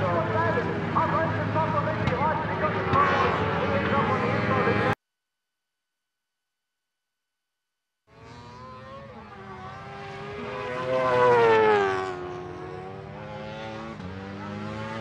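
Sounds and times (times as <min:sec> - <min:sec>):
racing car engine passing: 0:08.1 - 0:15.0.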